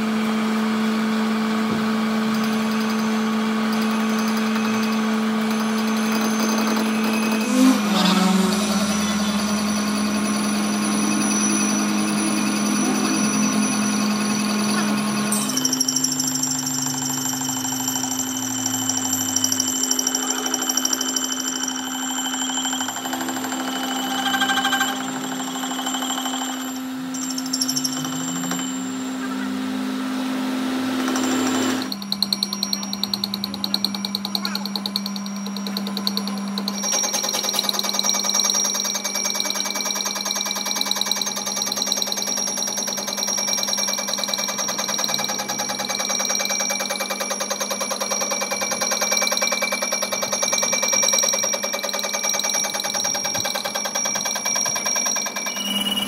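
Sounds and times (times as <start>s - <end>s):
metal lathe cutting metal: 0.1s - 32.0s.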